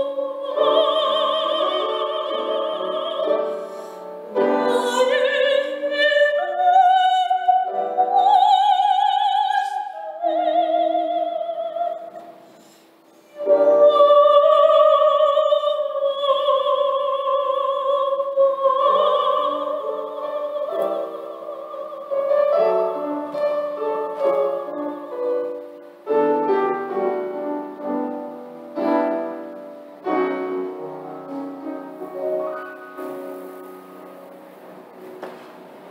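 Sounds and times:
woman singing operatically: 0.0 - 12.3, 13.4 - 23.0
piano accompaniment: 0.0 - 35.9.

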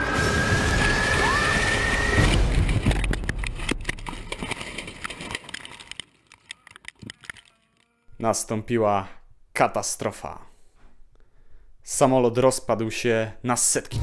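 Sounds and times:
wood cracking and clattering: 2.2 - 7.8.

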